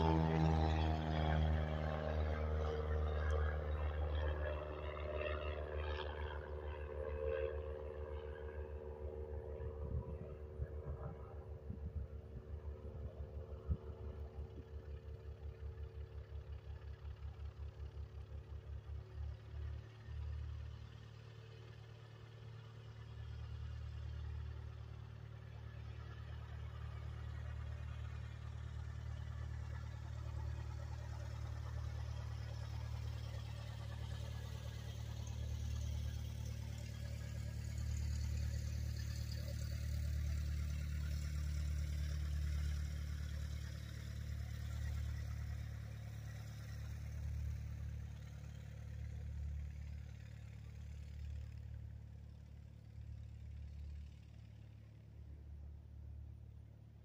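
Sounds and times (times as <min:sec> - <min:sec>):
propeller plane engine droning: 0:00.0 - 0:57.0.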